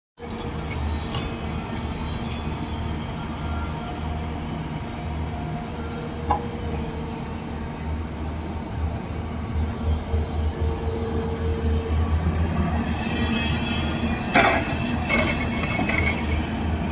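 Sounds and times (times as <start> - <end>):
excavator diesel engine under load: 13.8 - 16.9.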